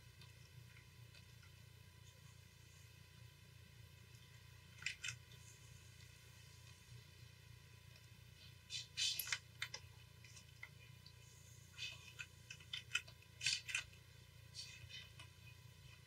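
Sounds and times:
low steady hum: 0.0s - 16.0s
computer mouse and keyboard clicks: 11.8s - 14.0s.

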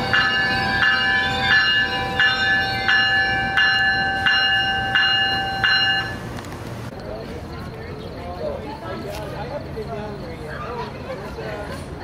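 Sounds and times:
train warning bell ringing: 0.0s - 6.4s.

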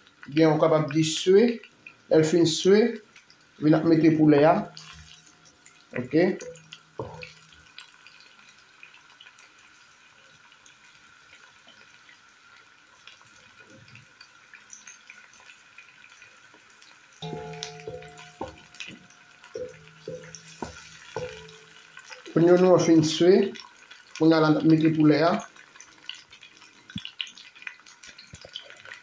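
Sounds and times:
onion and garlic sizzling in oil: 0.0s - 29.0s
spoon knocks on pot: 6.4s - 7.5s, 17.2s - 22.0s.

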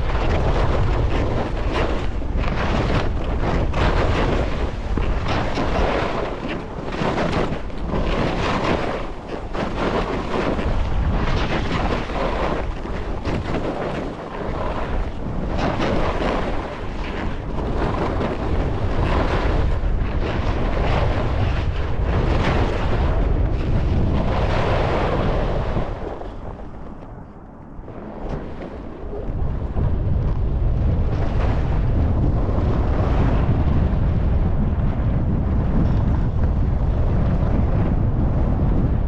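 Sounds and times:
wind buffeting microphone: 0.0s - 39.0s
skis scraping on snow: 0.1s - 29.5s.

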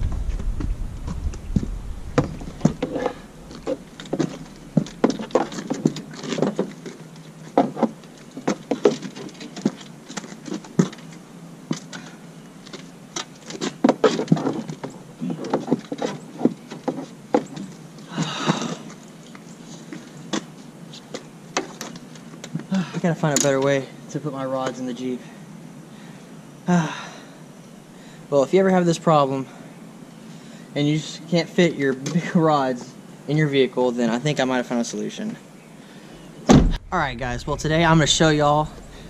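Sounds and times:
rustling: 0.0s - 11.2s.

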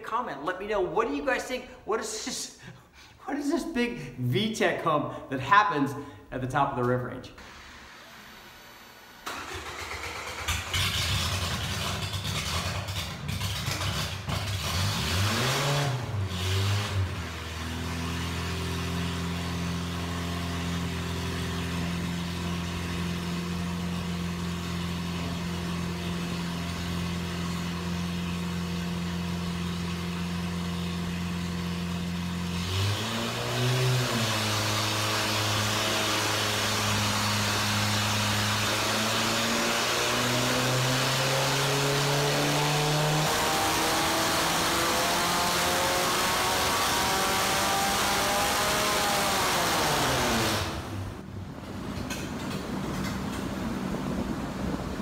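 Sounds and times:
four-cylinder engine revving and idling: 9.0s - 51.3s.

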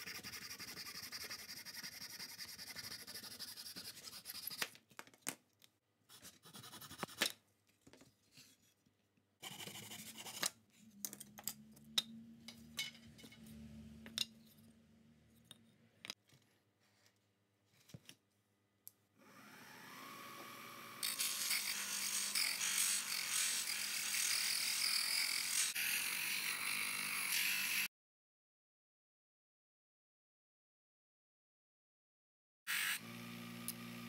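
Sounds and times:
bench grinder motor whining: 19.2s - 24.3s, 32.7s - 34.0s.

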